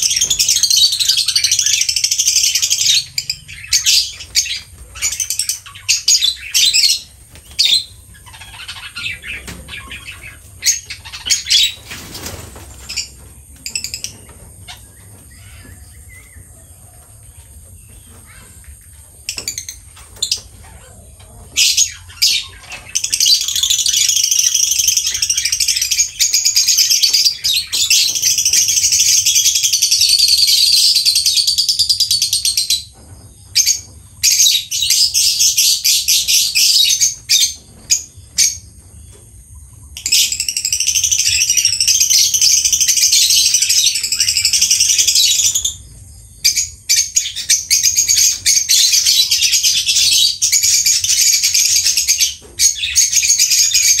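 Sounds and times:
parrots chattering: 0.0 - 11.8.

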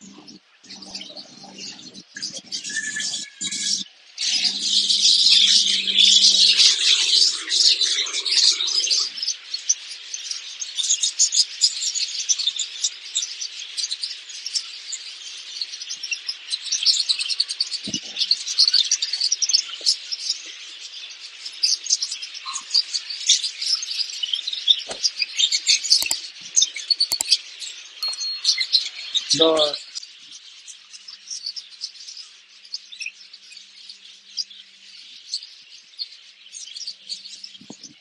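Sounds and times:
budgerigars chirping and twittering: 0.0 - 38.0
sharp clicks: 26.0 - 26.3, 27.1 - 27.4.

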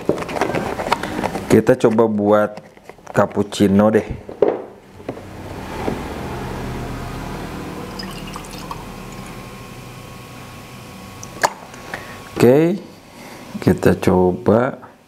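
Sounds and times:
milk pouring into a pitcher: 7.9 - 9.3.

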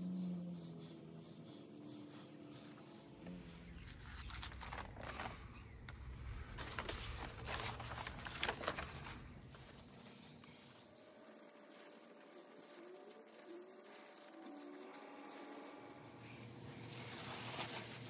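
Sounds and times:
paper rustling and crackling: 3.7 - 10.7, 16.6 - 18.0.

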